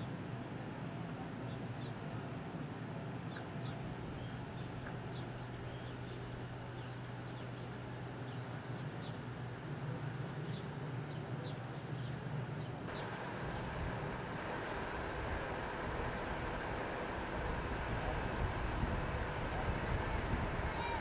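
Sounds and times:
vehicle engine idling: 12.9 - 21.0.

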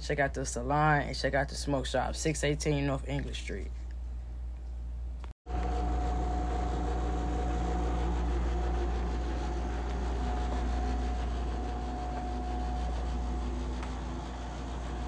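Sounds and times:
low machine hum: 3.9 - 15.0
thin whine: 5.5 - 15.0.

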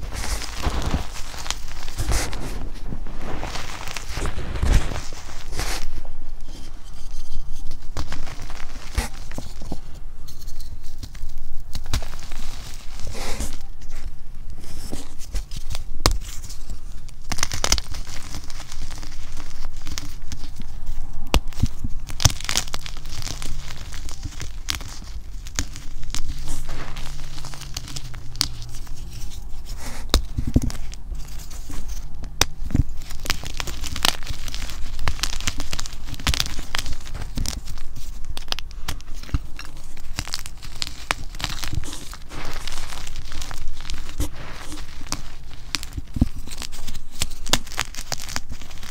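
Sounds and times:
chalk powder crunching: 0.0 - 48.9
chalk snapping and cracking: 0.0 - 48.9.

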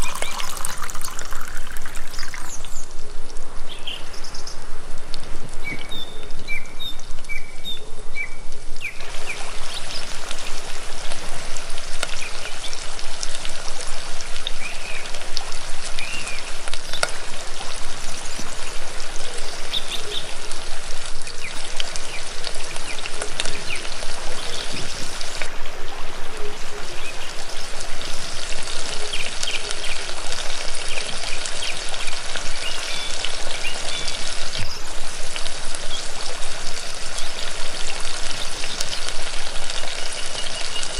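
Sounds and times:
onions sizzling in hot oil: 0.0 - 3.1, 8.6 - 25.8, 26.6 - 40.9.

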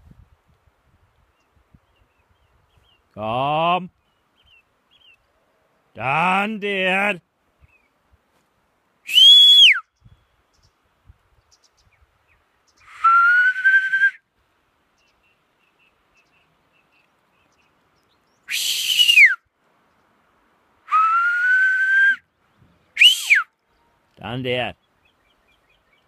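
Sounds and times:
herding whistles: 9.1 - 9.9, 12.9 - 14.2, 18.5 - 19.4, 20.9 - 22.2, 23.0 - 23.5.

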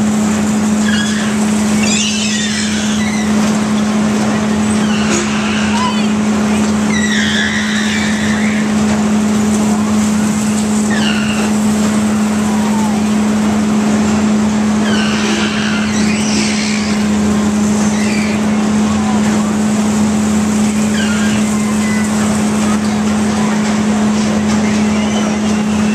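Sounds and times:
carnival ride machine hum: 0.0 - 25.9
short high squeals: 0.5 - 9.3, 10.2 - 13.2, 14.5 - 18.8, 20.1 - 22.7, 24.5 - 25.9.

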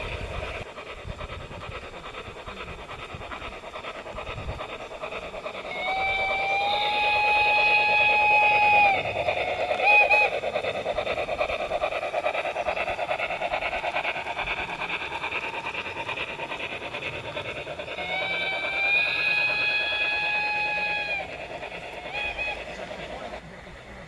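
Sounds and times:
steam chuffing: 0.0 - 24.0
steam locomotive whistle: 5.7 - 10.3, 18.0 - 21.3, 22.0 - 22.8.

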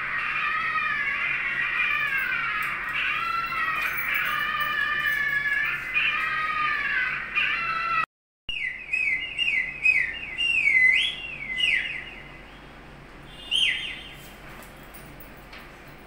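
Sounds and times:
bird-like whistled calls: 8.5 - 12.5, 13.3 - 14.3.

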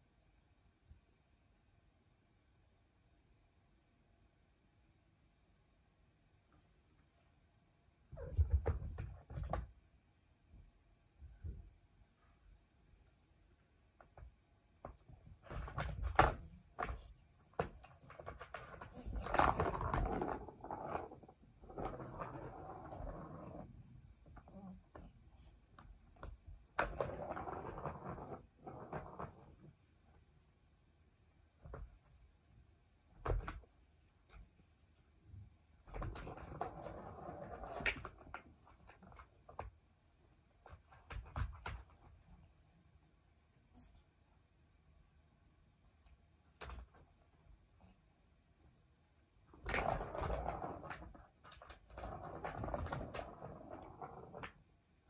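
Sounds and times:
plastic ball rolling and clattering: 14.9 - 25.1, 25.7 - 29.8, 35.9 - 39.8, 49.5 - 54.7.

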